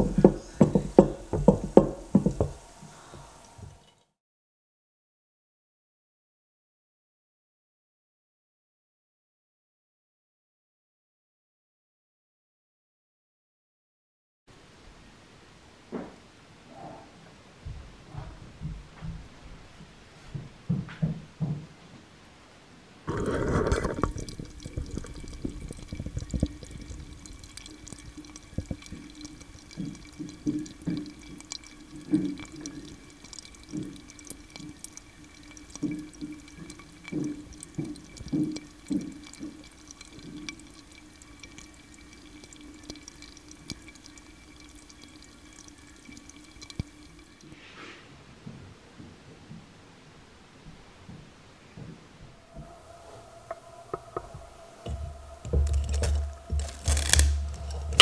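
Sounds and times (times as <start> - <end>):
fermenting mash popping and fizzing: 0.0 - 4.2, 23.1 - 47.6, 52.6 - 58.0.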